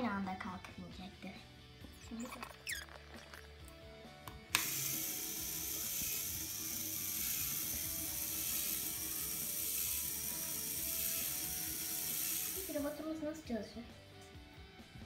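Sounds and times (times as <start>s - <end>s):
plastic gears whirring and rattling: 4.5s - 12.9s.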